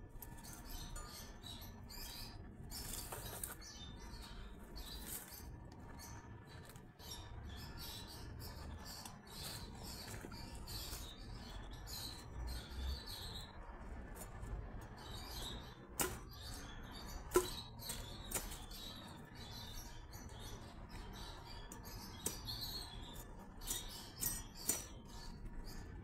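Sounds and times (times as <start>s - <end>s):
fronds snapping: 16.0s - 16.6s.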